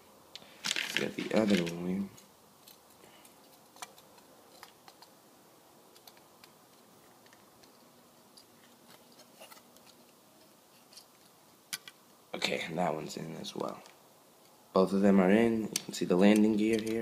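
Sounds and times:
plastic parts clicking: 2.6 - 5.1, 5.9 - 7.8.

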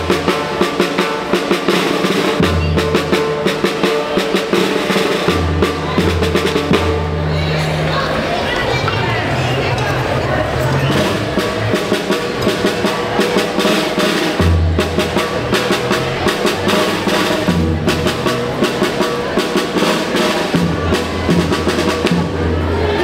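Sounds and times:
snare drum strokes and rolls: 0.0 - 7.4, 10.8 - 23.0
bass drum beats: 14.4 - 19.4.

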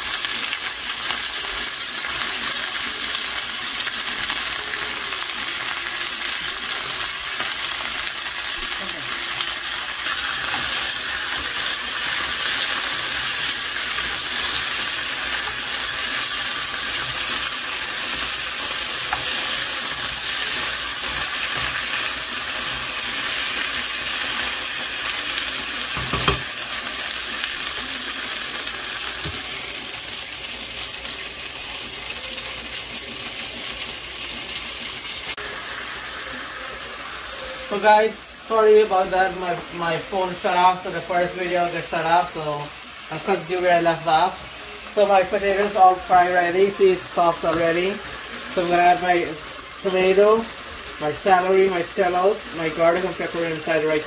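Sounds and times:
potatoes sizzling in hot oil: 0.0 - 54.0.

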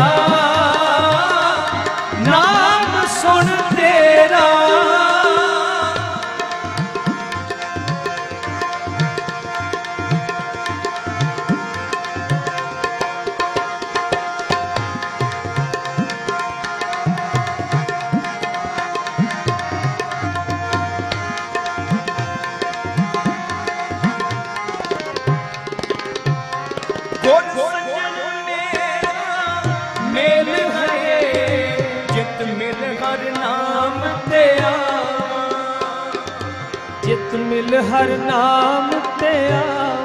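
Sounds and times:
person singing: 0.0 - 7.5, 27.2 - 40.0
harmonium melody: 0.0 - 40.0
tabla rhythm: 0.0 - 40.0.

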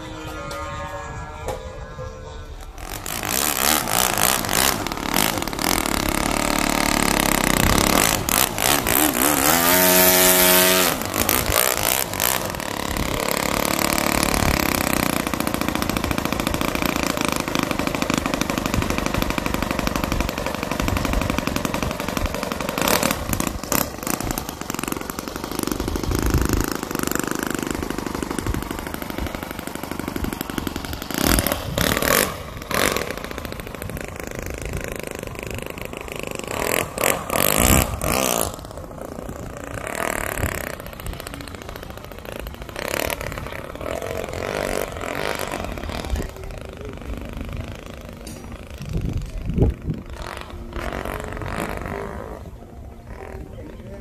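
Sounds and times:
model airplane engine revving: 0.0 - 54.0.

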